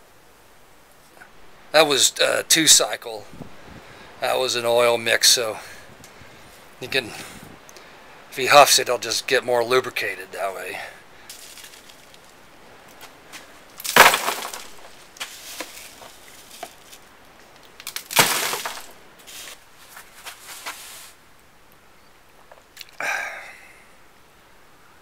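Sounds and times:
scoop scraping cat litter: 15.2 - 16.9, 20.2 - 21.2.

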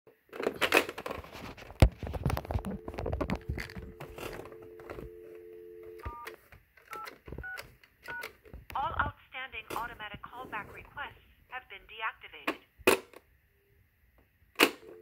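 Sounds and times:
handling rustle and clicks: 0.4 - 5.1
telephone dial tone: 2.5 - 8.3, 14.6 - 15.0.

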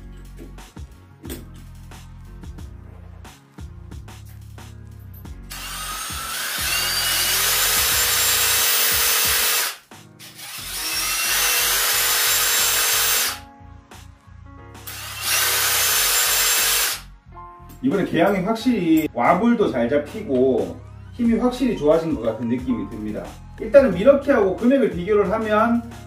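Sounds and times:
impact driver motor whining: 5.5 - 9.8, 14.9 - 17.0.

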